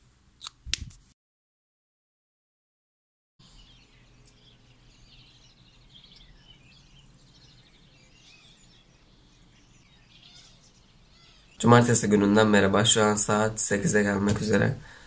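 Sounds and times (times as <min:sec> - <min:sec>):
birds chirping and trilling: 0:03.4 - 0:15.0
low steady hum: 0:03.4 - 0:15.0.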